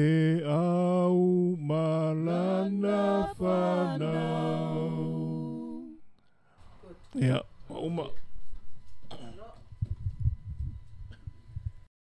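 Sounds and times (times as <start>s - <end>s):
man singing long held notes: 0.0s - 6.0s.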